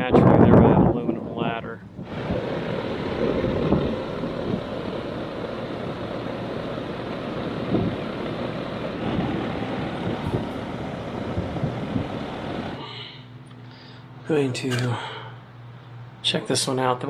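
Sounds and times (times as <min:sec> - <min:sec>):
air conditioner fan and compressor: 0:00.0 - 0:17.0.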